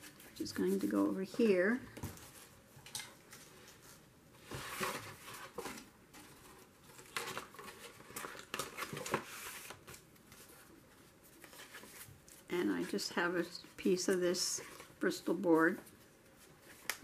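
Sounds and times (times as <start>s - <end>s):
paper rustling: 0.0s - 2.6s, 3.3s - 17.0s.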